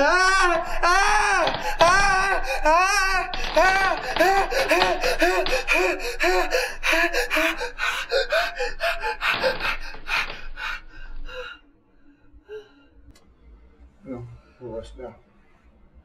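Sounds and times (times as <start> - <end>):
young man gasping cries: 0.0 - 11.6.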